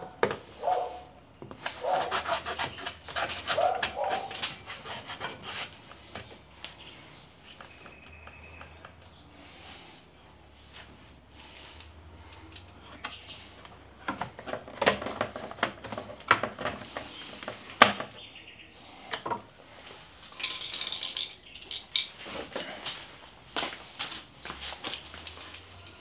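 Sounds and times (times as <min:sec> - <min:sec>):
metal hardware clinking: 0:20.3 - 0:22.2.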